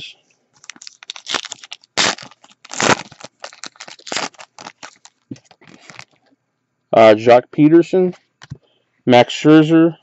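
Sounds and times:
foil wrapper crinkling: 0.6s - 6.2s.

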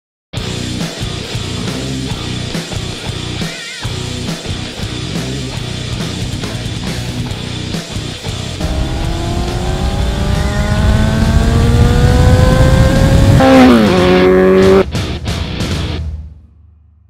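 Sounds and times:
motorcycle engine accelerating: 5.1s - 14.9s.

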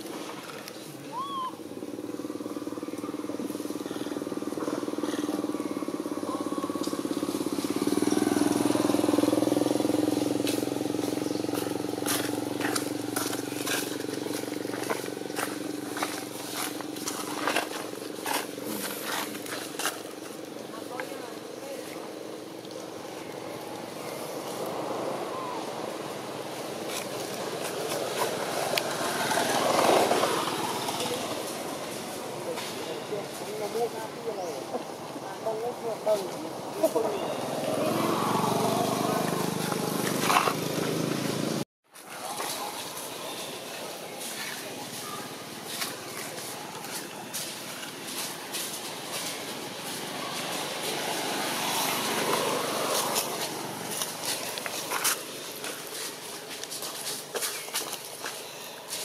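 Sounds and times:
motor vehicle passing: 0.0s - 58.8s
small engine running: 3.4s - 19.7s.

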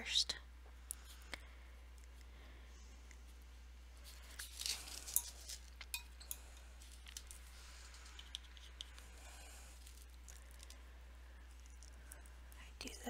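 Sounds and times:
paintbrushes and tools clinking on glass: 4.6s - 7.4s.

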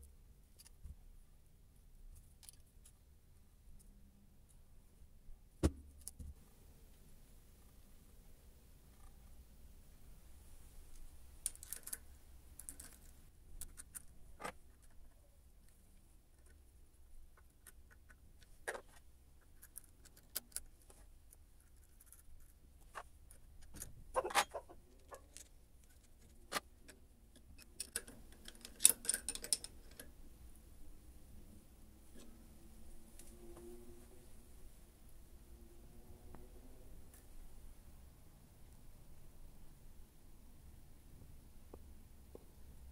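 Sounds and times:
metallic clicks of spanner and parts: 2.2s - 3.0s, 26.9s - 30.2s.

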